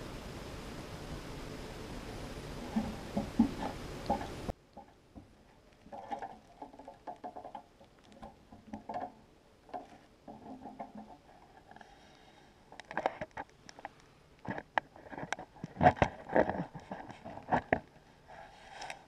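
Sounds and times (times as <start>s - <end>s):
gear clicks and knocks: 2.7s - 11.9s.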